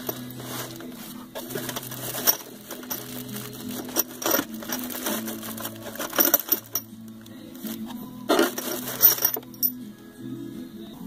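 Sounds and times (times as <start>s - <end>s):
metal hardware clinking: 0.0s - 7.0s, 8.3s - 9.8s
quiet background music: 0.0s - 11.0s.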